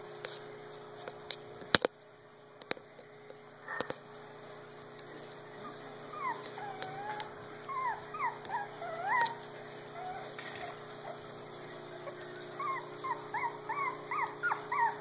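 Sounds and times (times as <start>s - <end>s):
puppy whimpering: 5.6s - 15.0s.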